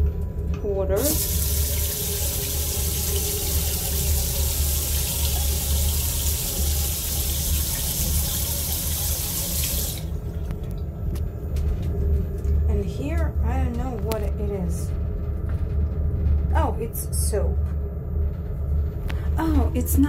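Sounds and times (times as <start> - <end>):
tap water running into basin: 1.0 - 10.8
steady low rumble: 10.1 - 20.0.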